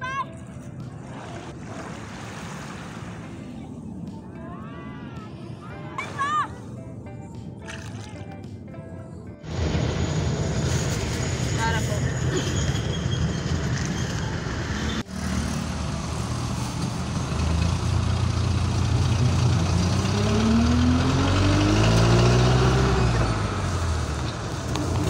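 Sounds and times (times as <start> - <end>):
vehicle engine and road noise: 6.6 - 25.0.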